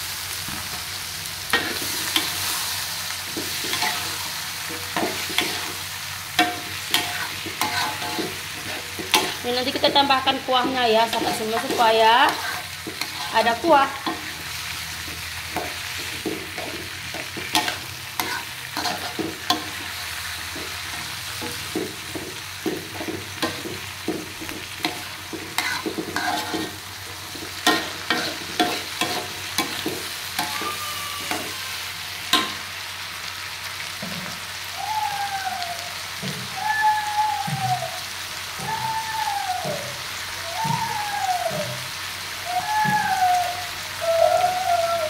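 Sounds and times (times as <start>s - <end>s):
vegetables sizzling: 0.0s - 45.0s
metal spatula scraping a wok: 3.3s - 31.6s.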